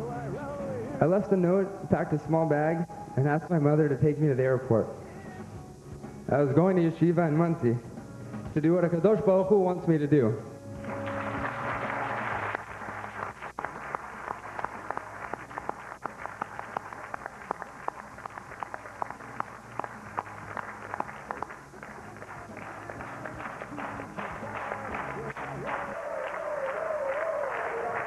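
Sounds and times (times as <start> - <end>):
audience applause: 10.8 - 28.0.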